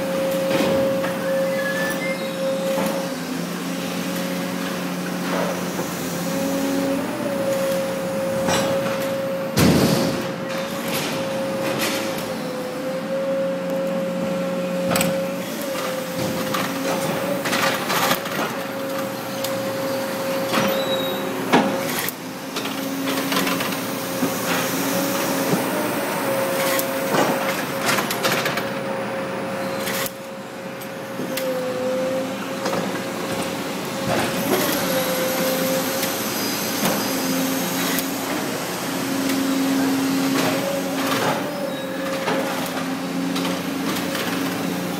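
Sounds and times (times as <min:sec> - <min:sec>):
machinery whine: 0:00.0 - 0:44.9
machinery clanks and knocks: 0:00.3 - 0:01.4, 0:08.3 - 0:12.3, 0:14.8 - 0:19.0.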